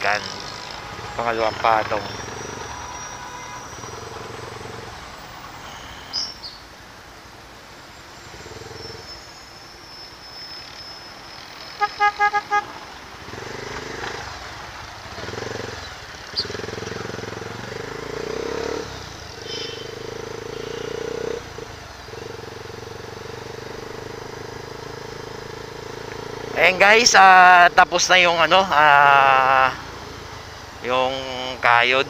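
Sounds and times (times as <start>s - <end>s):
motorcycle engine running: 0.0s - 2.9s, 12.5s - 31.8s
vehicle horn toots: 0.7s - 4.4s, 11.6s - 12.8s, 19.4s - 21.4s.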